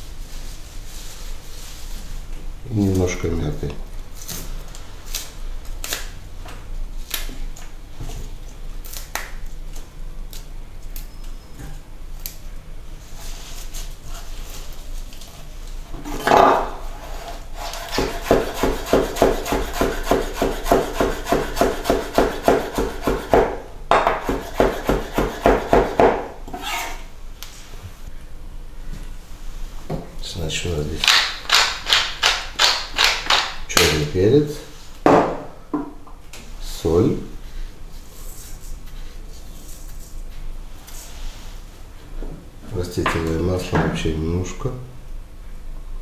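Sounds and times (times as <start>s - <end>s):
knife chopping on wooden board: 17.8s - 26.3s.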